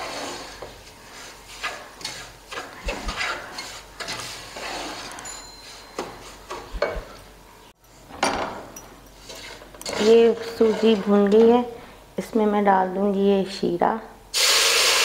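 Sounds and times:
wooden spatula scraping a pot: 0.0 - 7.2, 9.2 - 11.7.

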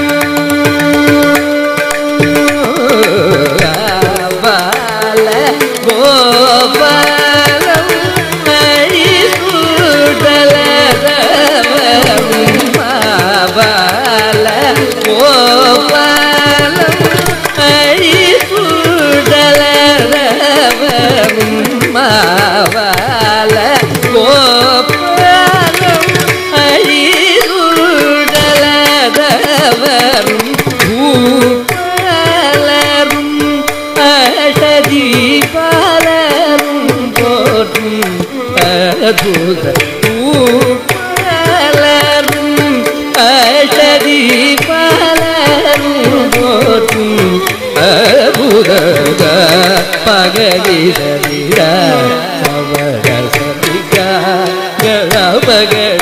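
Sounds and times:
mridangam strokes: 0.0 - 56.0.

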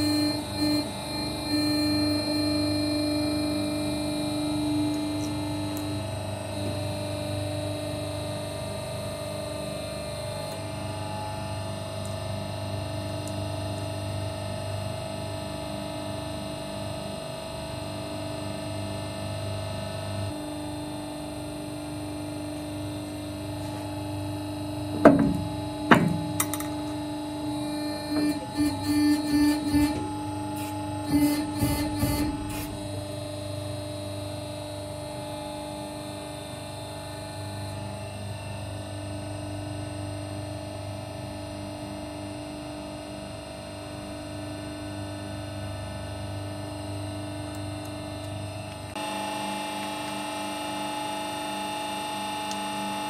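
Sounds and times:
hydraulic press humming: 0.0 - 7.0, 22.6 - 33.8.

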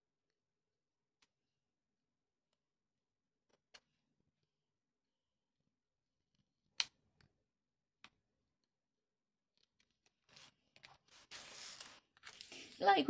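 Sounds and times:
craft knife cutting paper: 9.7 - 12.8
paper rustling and scraping: 10.1 - 13.0.

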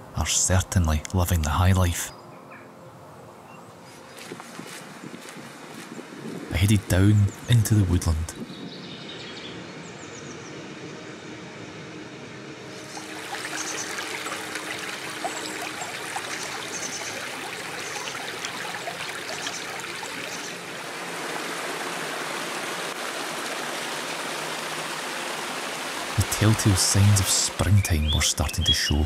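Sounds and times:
stream splashing over stones: 12.8 - 27.6.

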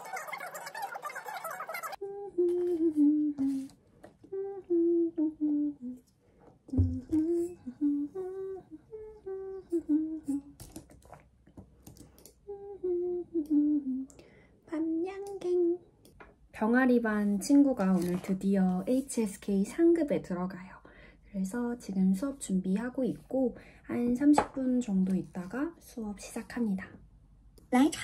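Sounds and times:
woman humming: 2.0 - 6.0, 6.7 - 10.6, 12.4 - 15.8
dull thump: 6.7 - 7.3.

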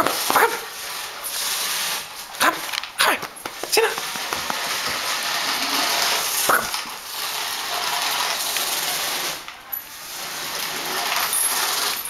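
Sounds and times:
toy car motor whirring: 0.0 - 2.8, 3.9 - 12.0.

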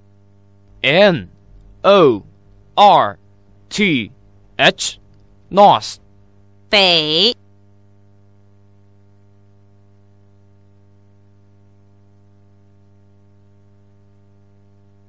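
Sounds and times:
buzzy electrical hum: 0.0 - 15.0.

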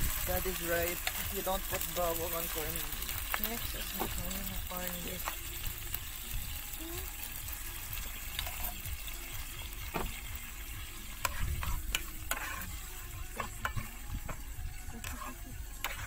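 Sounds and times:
food sizzling in a frying pan: 0.0 - 16.0
spatula scraping and tapping pan: 8.3 - 8.8, 11.2 - 16.0.

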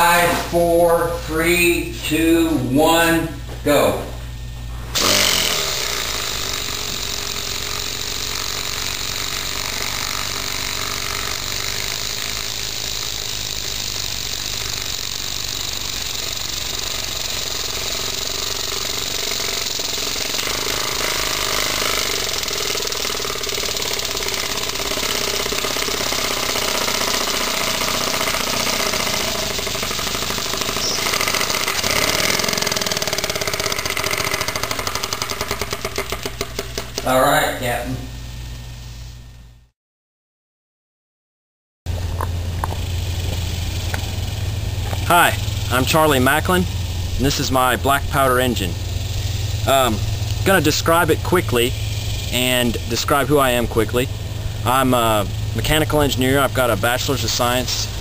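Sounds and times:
small engine beating rapidly: 5.0 - 37.5, 41.9 - 58.0
steady hiss: 42.0 - 58.0.

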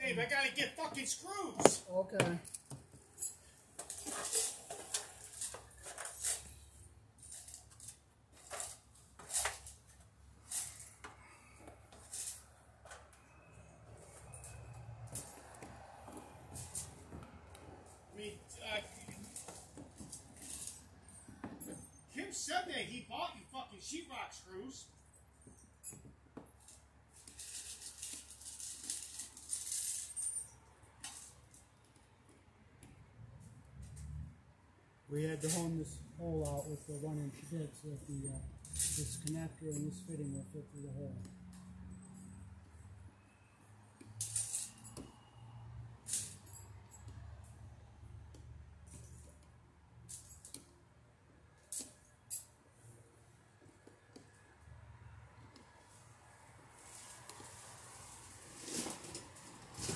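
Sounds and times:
metal tools clinking: 1.6 - 15.6, 18.2 - 22.2, 35.3 - 40.9, 44.2 - 45.0.

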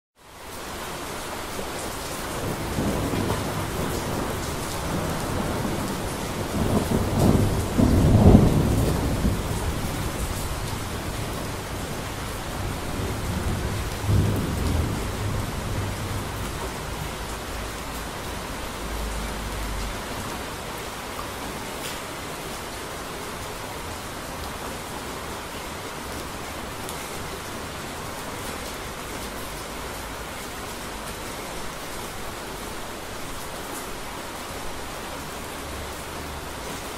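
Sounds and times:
steady rain: 0.2 - 36.9
thunder rumbling: 2.4 - 20.1.

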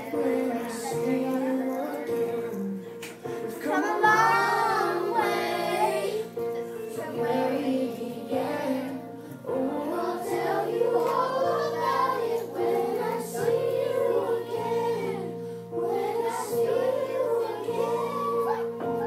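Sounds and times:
person singing: 0.0 - 6.3.

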